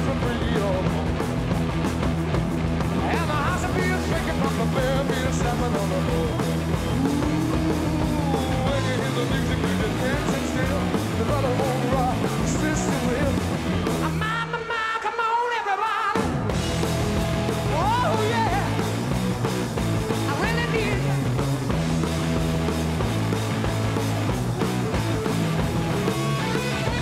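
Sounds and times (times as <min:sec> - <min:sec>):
rock music with guitar: 0:00.0 - 0:27.0
person singing: 0:03.0 - 0:16.2.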